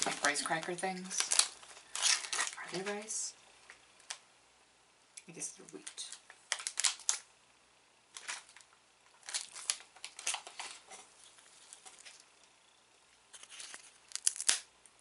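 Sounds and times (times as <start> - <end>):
plastic wrapper crinkling: 0.0 - 3.1, 5.7 - 7.3, 8.1 - 12.3, 13.3 - 14.7.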